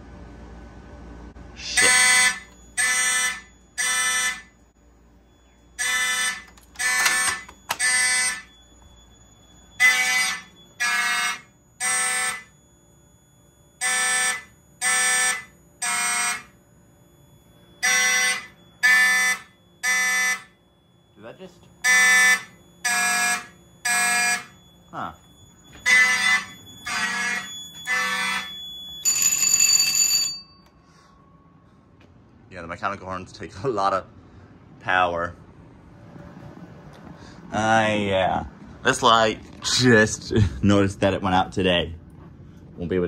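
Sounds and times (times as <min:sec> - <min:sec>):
fire alarm horns blasting: 0:01.6 - 0:32.0.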